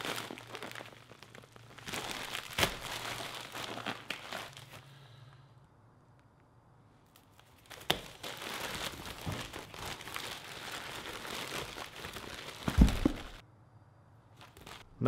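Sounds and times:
plastic pouch crinkling: 0.0s - 5.0s, 7.2s - 13.4s, 14.4s - 14.8s
stickers spilling onto table: 7.8s - 13.4s.

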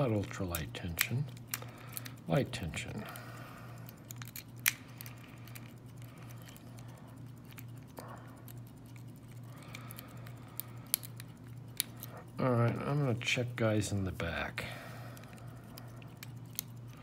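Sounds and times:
steady low hum: 0.0s - 17.0s
lock pick clicking and scraping: 3.8s - 12.4s, 15.2s - 17.0s.

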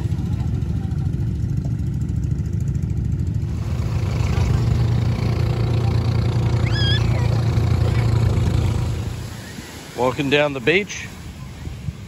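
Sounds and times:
motorboat engines droning: 0.0s - 12.0s.

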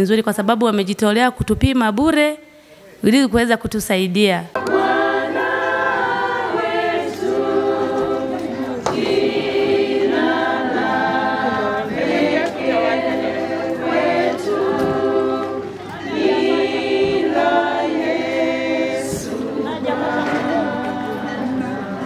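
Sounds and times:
choir singing: 4.6s - 22.0s.

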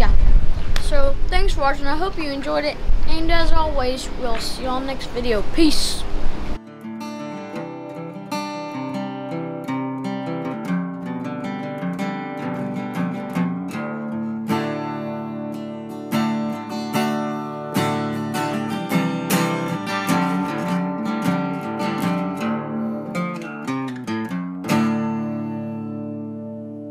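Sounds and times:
acoustic guitar strummed and plucked: 6.6s - 26.9s.

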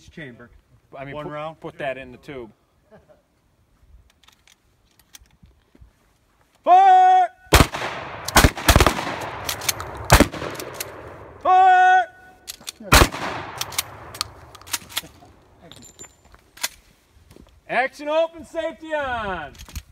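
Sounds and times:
fainter distant gunshots: 7.5s - 11.4s, 12.9s - 15.5s
shotgun firing loud shots: 7.5s - 11.4s, 12.9s - 15.2s.

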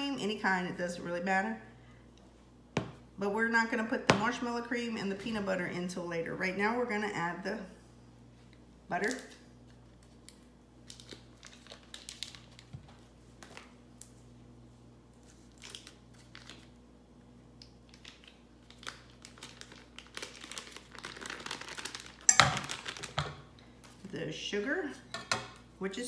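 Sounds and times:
paper wrapper crinkling and tearing: 9.0s - 14.1s, 15.2s - 16.8s, 17.8s - 23.2s.

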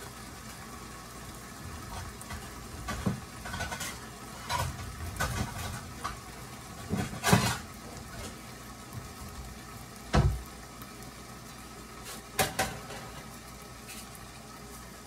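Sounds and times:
shrimp sizzling in pan: 0.0s - 15.0s
sharp pops from pan: 1.9s - 8.3s, 10.0s - 10.5s, 12.0s - 14.2s.

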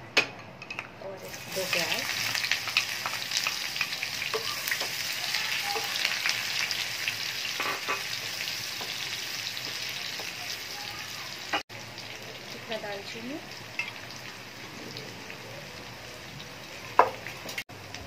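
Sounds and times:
onions sizzling in hot oil: 1.2s - 18.0s.

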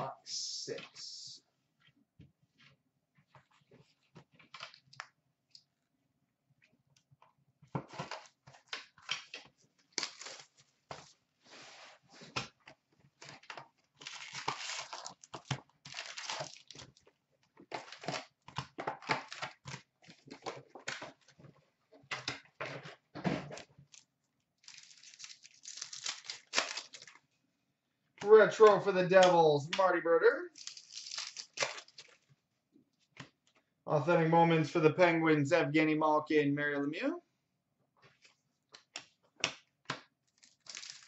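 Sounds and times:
wrappers crinkling and tearing: 9.9s - 10.7s, 14.0s - 17.0s, 23.9s - 27.2s, 30.5s - 32.2s, 40.3s - 41.0s.

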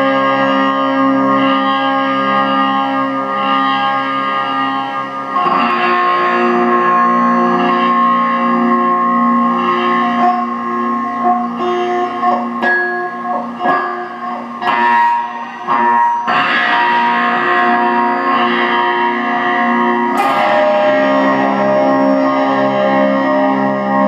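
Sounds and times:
electric guitar with effects: 0.0s - 24.0s.

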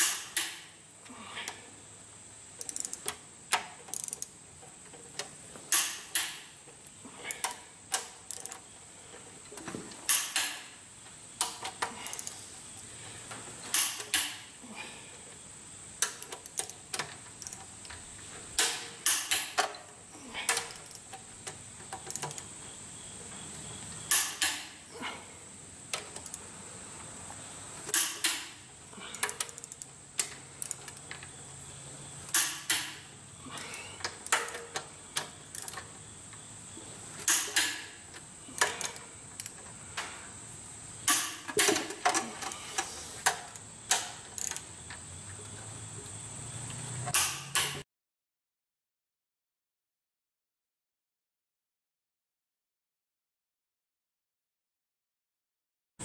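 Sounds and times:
ratchet wrench clicking: 2.6s - 4.3s, 7.4s - 8.6s, 17.4s - 17.7s, 26.2s - 26.4s, 43.2s - 44.6s.

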